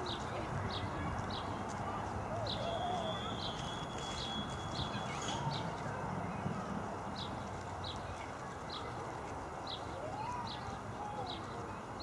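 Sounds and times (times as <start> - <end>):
bird repeating high call: 2.6 - 5.3.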